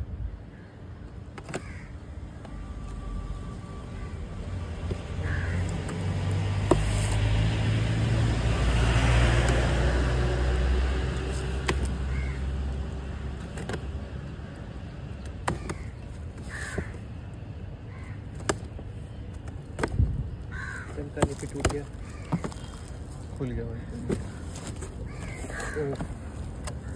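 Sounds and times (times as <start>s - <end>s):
crows cawing: 0.5s - 2.6s, 5.1s - 5.9s, 12.0s - 12.6s, 15.5s - 17.0s, 17.9s - 18.3s, 20.5s - 22.8s, 23.6s - 26.9s
low vehicle rumble: 2.0s - 26.9s.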